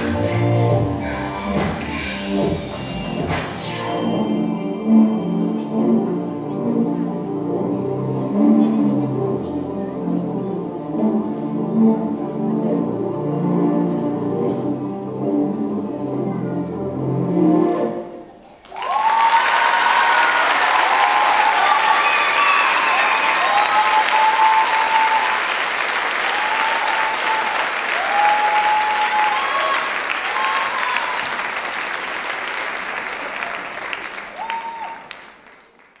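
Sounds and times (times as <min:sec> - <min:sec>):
music: 0:00.0 - 0:18.4
audience applauding: 0:18.4 - 0:36.0.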